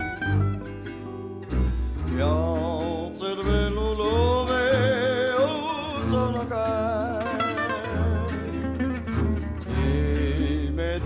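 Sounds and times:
instrumental accompaniment with bass: 0:00.0 - 0:11.0
person singing with vibrato: 0:01.6 - 0:08.8, 0:09.6 - 0:11.0.

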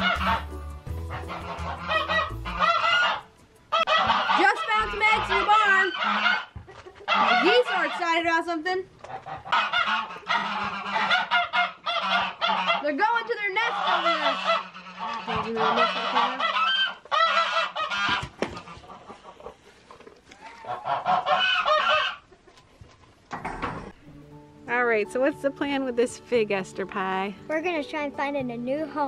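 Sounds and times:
goose honking: 0:00.0 - 0:08.3, 0:09.0 - 0:19.6, 0:20.4 - 0:22.3.

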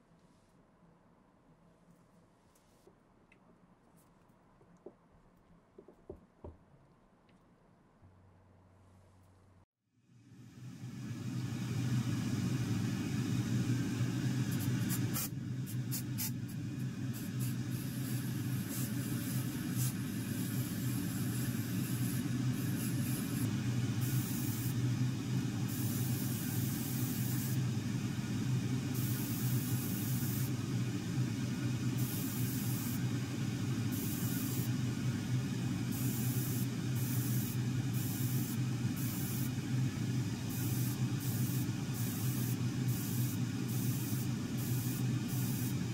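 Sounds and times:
low machine hum: 0:07.1 - 0:45.9
airbrush hissing: 0:13.4 - 0:31.0, 0:31.8 - 0:39.6, 0:40.5 - 0:45.9.

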